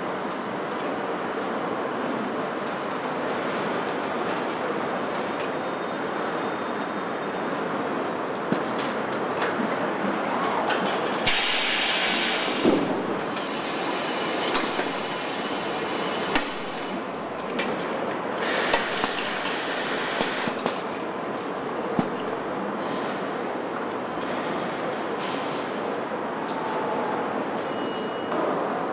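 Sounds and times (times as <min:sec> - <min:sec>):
assembly line machinery: 0:11.0 - 0:17.4, 0:18.3 - 0:20.8
loud hisses: 0:11.3 - 0:12.6.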